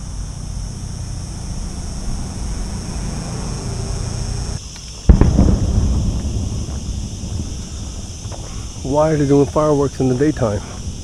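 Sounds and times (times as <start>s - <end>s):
high buzz: 0.0s - 11.0s
low outdoor rumble: 0.0s - 11.0s
firework bang: 5.0s - 9.2s.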